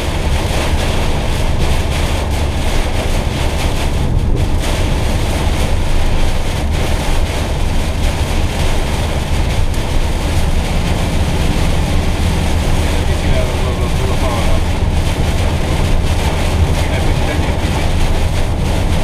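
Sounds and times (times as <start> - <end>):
engine and tyres rumbling: 0.0 - 19.0
heavy rain on windscreen: 0.0 - 19.0.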